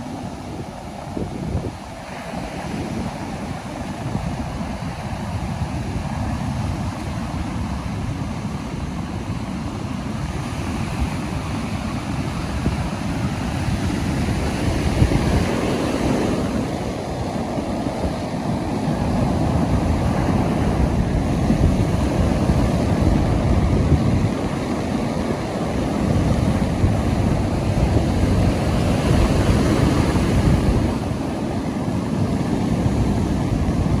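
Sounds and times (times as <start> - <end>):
ocean surf breaking on beach: 0.0 - 34.0.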